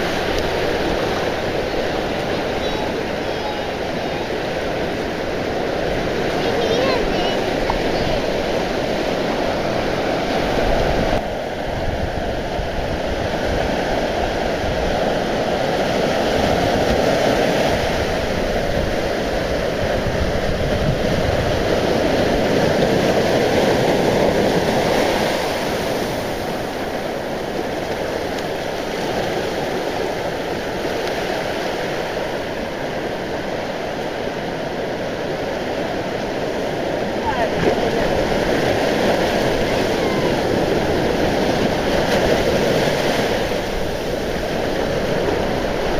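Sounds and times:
surf washing up a beach: 0:00.0 - 0:45.9.

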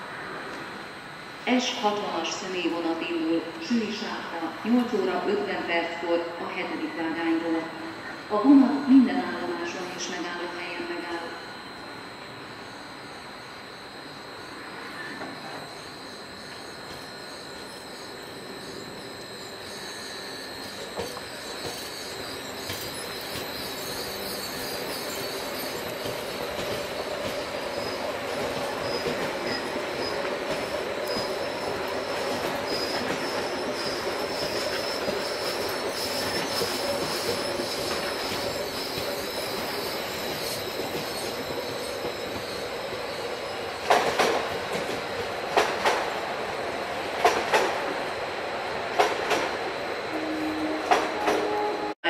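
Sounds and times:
train running with high whine: 0:00.0 - 0:52.0
wheel squeal: 0:15.0 - 0:43.6
wheels clacking on track: 0:20.9 - 0:43.0.

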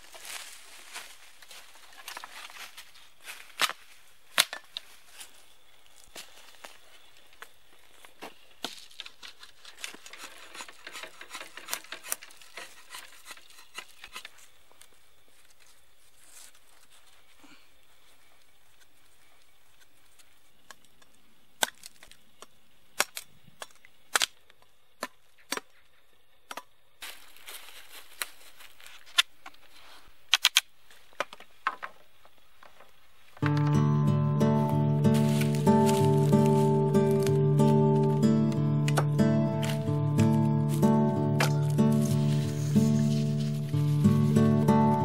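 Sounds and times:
machete chopping sapling: 0:38.5 - 0:43.2.

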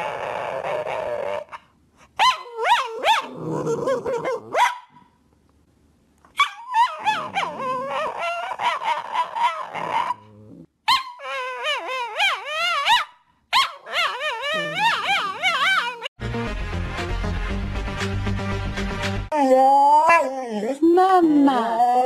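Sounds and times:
dog whining: 0:00.0 - 0:01.6, 0:06.4 - 0:16.1.

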